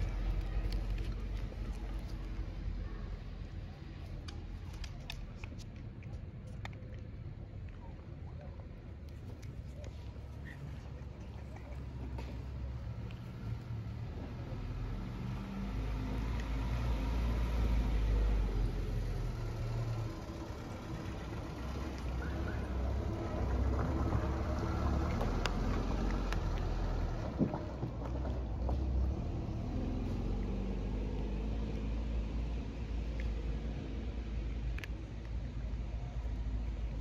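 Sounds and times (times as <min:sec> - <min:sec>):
cat chewing dry kibble: 0:00.0 - 0:14.6, 0:23.0 - 0:28.4, 0:31.7 - 0:37.0
vehicle engine rumble: 0:00.0 - 0:37.0.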